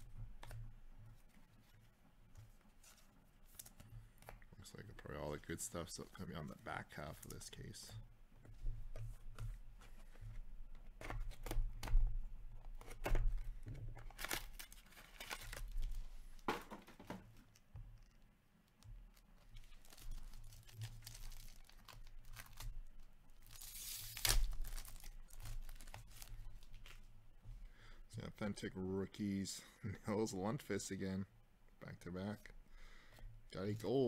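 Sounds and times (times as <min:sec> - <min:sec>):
plastic wrapping ripping: 0:14.0 - 0:16.0, 0:19.1 - 0:22.8, 0:23.4 - 0:27.0.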